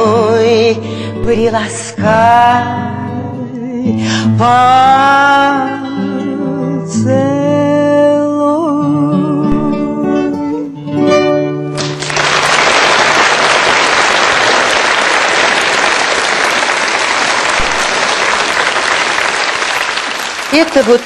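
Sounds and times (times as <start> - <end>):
acoustic guitar: 0.0 - 14.8
audience applause: 11.8 - 21.0.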